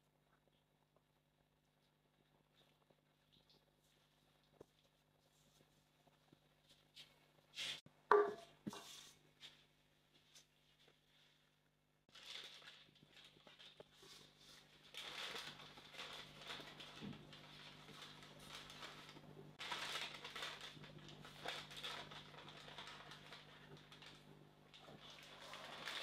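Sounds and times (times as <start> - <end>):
baking paper rustling and crinkling: 8.7 - 26.0.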